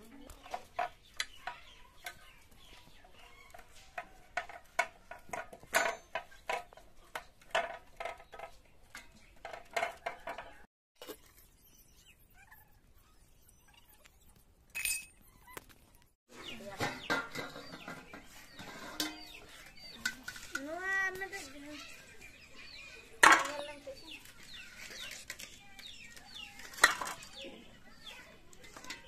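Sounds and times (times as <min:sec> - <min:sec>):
chickens clucking: 0:00.0 - 0:05.3, 0:16.3 - 0:20.6.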